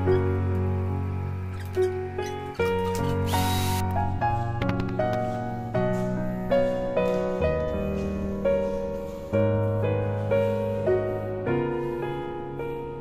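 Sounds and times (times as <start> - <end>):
slow piano notes: 0.0 - 13.0.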